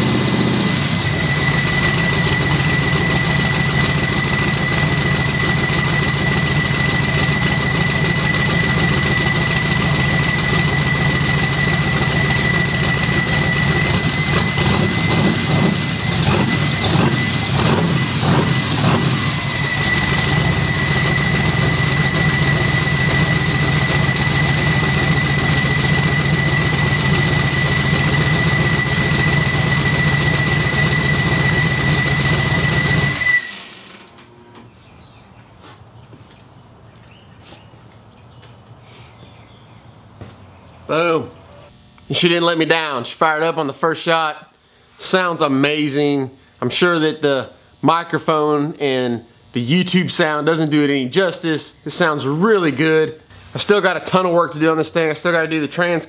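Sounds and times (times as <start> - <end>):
car engine running: 0.0 - 33.7
high-pitched turbo whine: 0.0 - 35.0.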